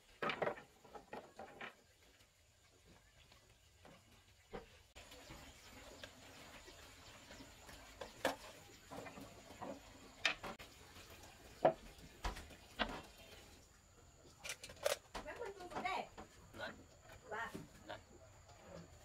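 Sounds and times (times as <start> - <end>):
wooden strips knocking and clattering: 0.0 - 2.2, 8.0 - 10.6.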